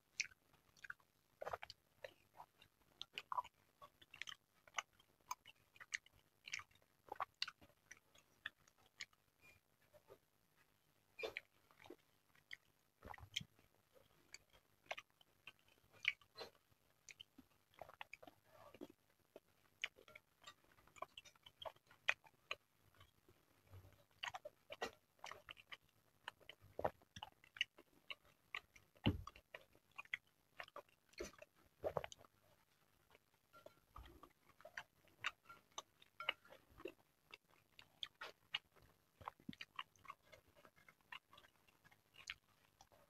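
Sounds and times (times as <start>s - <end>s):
close chewing and mouth sounds: 0.0s - 43.0s.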